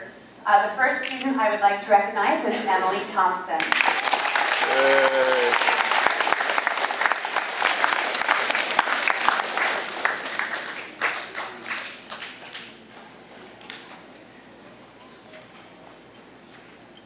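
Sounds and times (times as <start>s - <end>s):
children applauding: 3.6s - 12.6s.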